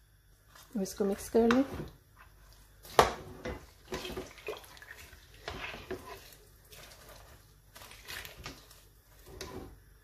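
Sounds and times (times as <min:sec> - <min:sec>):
liquid sloshing in a pot: 0:00.4 - 0:09.8
spoon scraping and knocking pot: 0:01.2 - 0:04.4, 0:05.0 - 0:07.4, 0:08.0 - 0:09.8.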